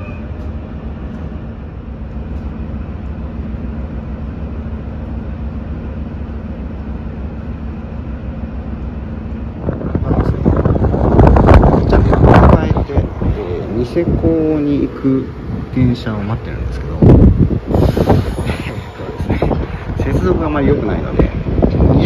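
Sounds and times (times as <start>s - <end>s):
diesel train rumble: 0.0s - 22.0s
wind on microphone: 9.6s - 14.6s, 16.8s - 22.0s.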